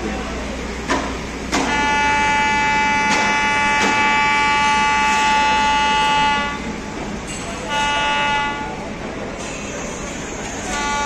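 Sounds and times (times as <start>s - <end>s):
locomotive horn blast: 1.6s - 6.8s, 7.6s - 9.0s, 10.6s - 11.0s.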